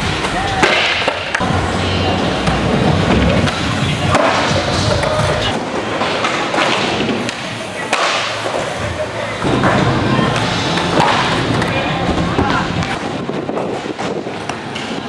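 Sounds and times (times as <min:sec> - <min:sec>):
skateboard wheels rolling on concrete: 0:00.0 - 0:15.0.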